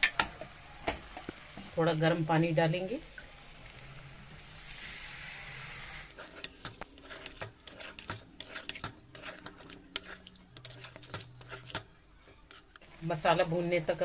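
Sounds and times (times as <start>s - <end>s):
water hissing in hot pan: 0.0s - 7.3s
spatula scraping metal pan: 5.7s - 12.9s.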